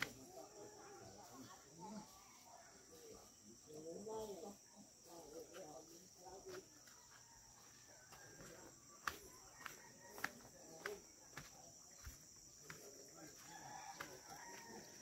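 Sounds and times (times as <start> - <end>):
footsteps on stone path: 5.2 - 15.0.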